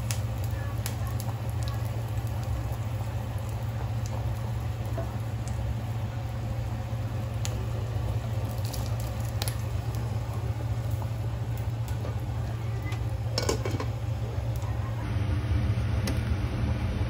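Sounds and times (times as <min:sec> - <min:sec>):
low steady hum: 0:00.0 - 0:17.0
soup bubbling and popping: 0:01.2 - 0:14.1.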